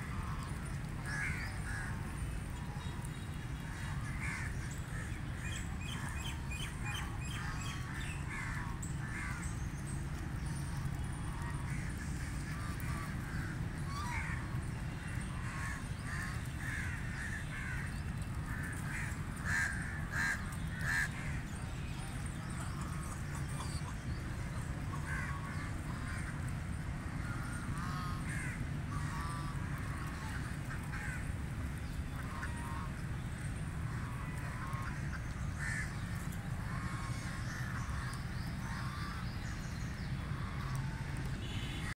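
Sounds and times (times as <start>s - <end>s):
ducks and geese quacking: 15.4s - 31.4s, 32.1s - 33.2s, 33.8s - 39.2s.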